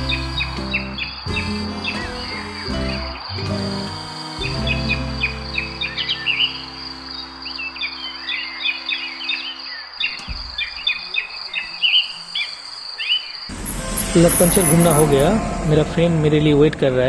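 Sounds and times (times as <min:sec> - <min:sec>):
small birds chirping: 0:00.0 - 0:13.5
high insect drone: 0:00.0 - 0:17.0
soft sustained music notes: 0:13.5 - 0:17.0.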